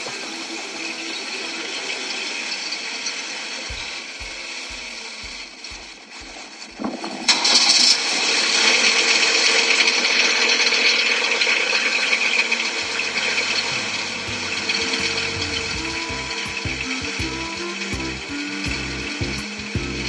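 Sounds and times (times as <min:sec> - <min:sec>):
loud steady mechanical noise: 0:00.0 - 0:20.0
low rhythmic knocking: 0:03.7 - 0:07.3, 0:12.8 - 0:20.0.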